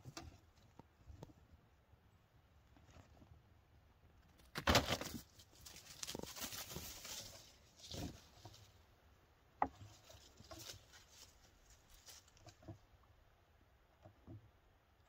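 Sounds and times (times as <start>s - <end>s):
kittens rustling in dry leaves: 5.1s - 8.8s, 9.8s - 12.6s.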